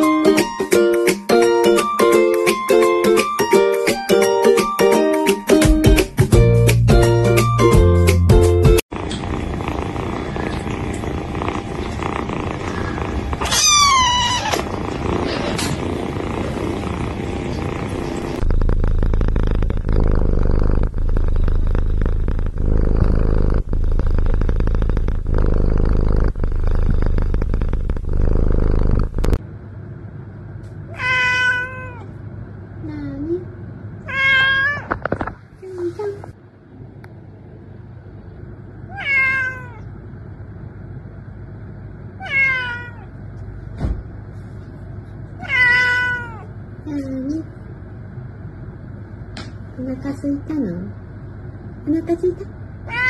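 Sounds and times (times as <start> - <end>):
cat purring loudly: 8.9 - 29.4
cat meowing: 13.4 - 14.7, 30.9 - 32.1, 34.0 - 34.9, 38.9 - 39.9, 42.2 - 43.1, 45.4 - 46.5.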